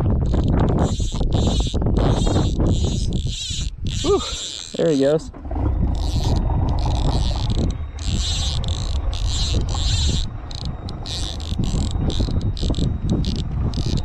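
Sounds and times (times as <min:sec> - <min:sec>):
wind rumble on microphone: 0:00.0 - 0:04.4, 0:05.2 - 0:14.0
fishing reel drag clicking: 0:00.2 - 0:05.2, 0:05.9 - 0:14.0.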